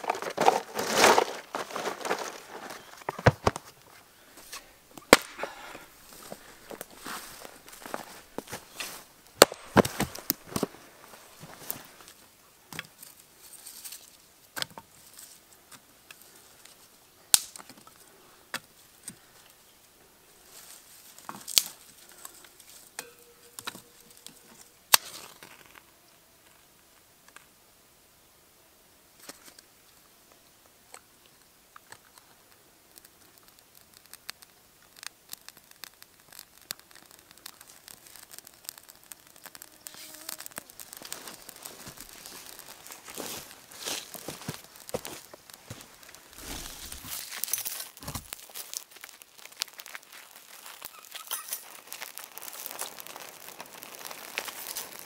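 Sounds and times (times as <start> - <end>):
brush rustling: 0.0 - 12.2, 20.4 - 25.3, 37.5 - 55.0
fire crackling: 0.0 - 25.8, 31.0 - 55.0
twigs snapping: 4.4 - 12.2, 17.3 - 17.8, 21.2 - 25.7, 33.0 - 55.0.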